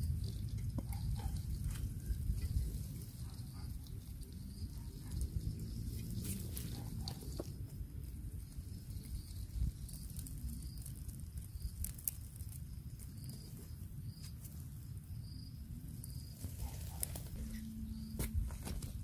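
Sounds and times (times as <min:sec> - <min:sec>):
hands digging in dry soil: 0:00.0 - 0:15.2, 0:15.9 - 0:19.0.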